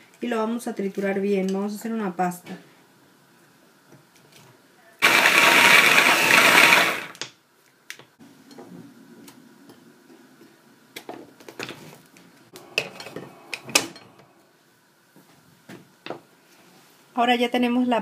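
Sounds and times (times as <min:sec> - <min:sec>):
food processor running: 0:05.0 - 0:07.2.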